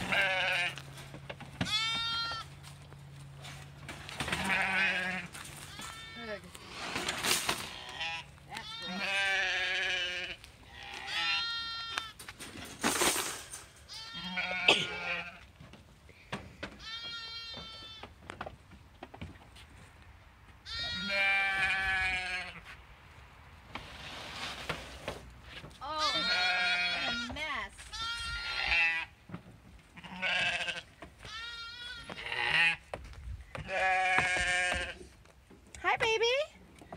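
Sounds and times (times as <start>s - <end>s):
livestock bleating: 0.0s - 0.9s, 1.6s - 2.5s, 4.2s - 6.6s, 7.6s - 12.2s, 13.9s - 15.4s, 16.8s - 18.1s, 20.6s - 22.6s, 25.8s - 29.2s, 30.0s - 32.9s, 33.6s - 35.1s
wire crates clattering: 6.8s - 7.8s, 12.3s - 13.9s.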